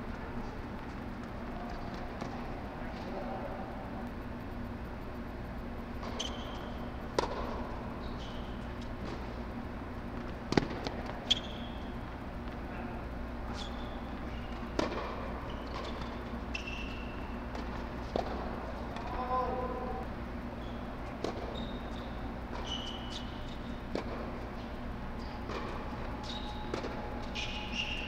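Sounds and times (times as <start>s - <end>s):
steady low hum: 0.0s - 28.0s
shoes squeaking on court: 0.1s - 3.2s, 5.8s - 19.8s, 20.6s - 28.0s
ball bouncing: 6.0s - 7.7s, 10.2s - 11.5s, 14.5s - 16.2s, 26.7s - 27.0s
racquets striking tennis ball: 6.0s - 7.9s, 10.0s - 11.6s, 14.1s - 16.9s, 17.5s - 19.1s, 22.5s - 24.4s, 25.4s - 28.0s.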